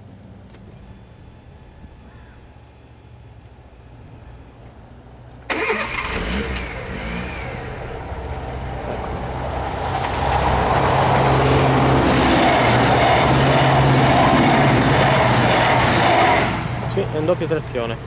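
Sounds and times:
diesel train approaching: 0:00.0 - 0:18.0.

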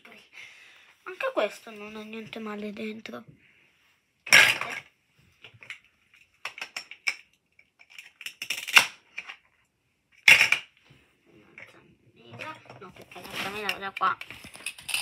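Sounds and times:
plastic toys clattering: 0:04.3 - 0:10.8, 0:11.5 - 0:15.0.

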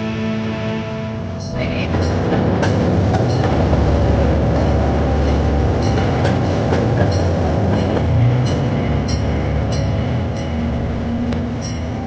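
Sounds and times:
train motor droning: 0:00.0 - 0:12.0
clicks and rattles of passenger cars: 0:01.8 - 0:10.6.

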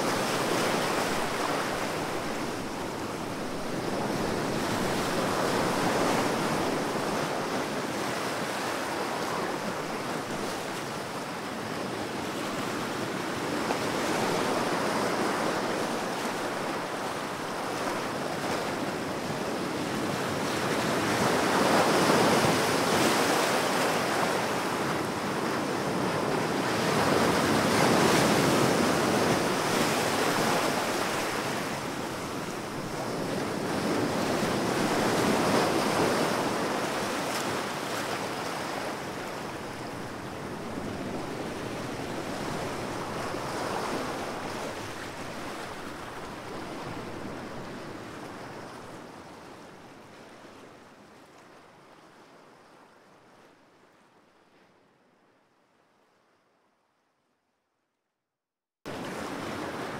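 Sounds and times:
ocean waves breaking: 0:13.4 - 0:49.3.

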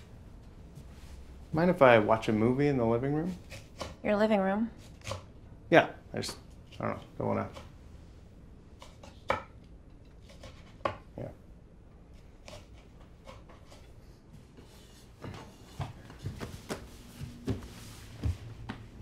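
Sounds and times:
footsteps on wooden floor: 0:15.2 - 0:19.0.

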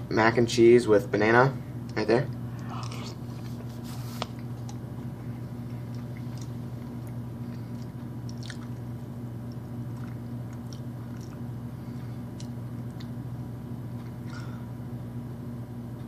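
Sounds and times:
low electrical hum: 0:00.0 - 0:16.0
wet chewing: 0:02.5 - 0:13.2.

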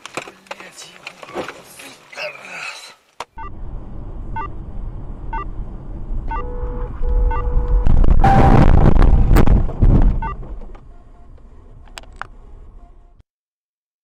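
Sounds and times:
engine and road rumble: 0:03.1 - 0:13.2
short electronic beeps: 0:06.3 - 0:08.8
steady electronic tone: 0:06.3 - 0:09.2.

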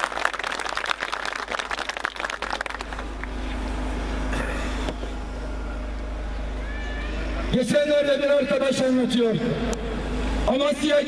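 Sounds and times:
crowd applauding: 0:00.0 - 0:03.4
low hum: 0:00.0 - 0:11.0.

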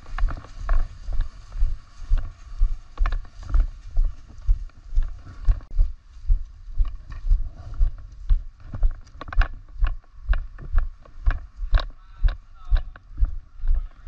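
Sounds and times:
running footsteps: 0:00.0 - 0:14.0
light clicks and rattles: 0:06.8 - 0:14.0.

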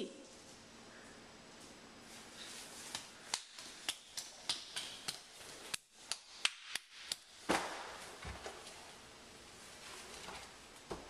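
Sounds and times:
hands slapping on hardwood floor: 0:02.8 - 0:08.4
thump on floor: 0:07.5 - 0:08.4.

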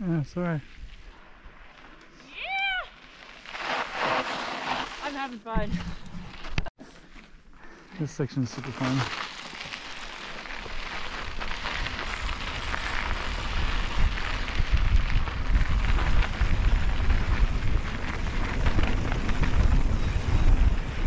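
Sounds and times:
bike tyres crunching on dirt: 0:00.0 - 0:21.0
wind rumbling on microphone: 0:10.7 - 0:21.0.

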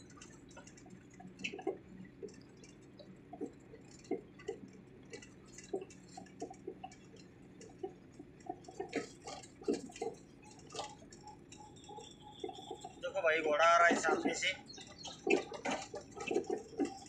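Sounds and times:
truck cab rattling: 0:08.2 - 0:17.0.

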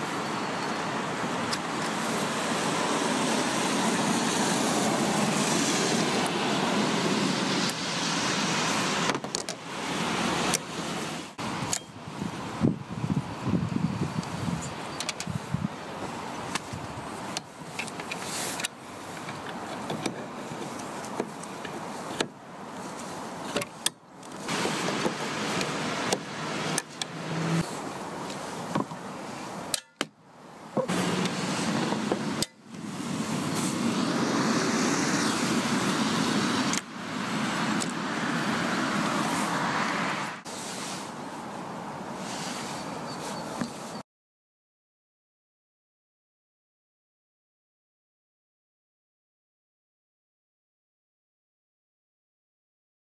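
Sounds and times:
steady rushing noise: 0:00.0 - 0:29.7, 0:30.7 - 0:42.8.

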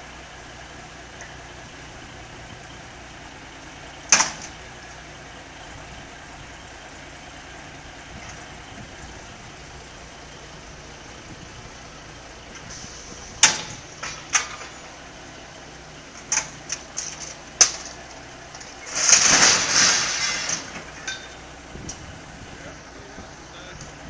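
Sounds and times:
diesel engine running: 0:00.0 - 0:24.0
metallic clanks: 0:04.1 - 0:04.6, 0:12.5 - 0:15.0, 0:16.1 - 0:22.1.

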